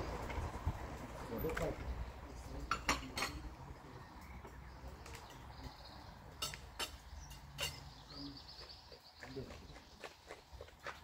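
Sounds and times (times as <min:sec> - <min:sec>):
plates cutlery and glasses clinking: 0:02.6 - 0:03.5, 0:06.3 - 0:08.0.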